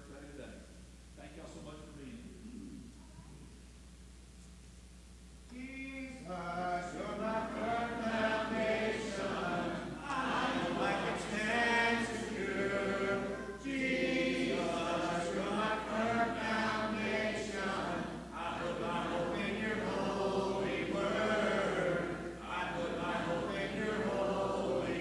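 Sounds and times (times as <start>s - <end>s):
congregation singing unaccompanied: 5.6s - 25.0s.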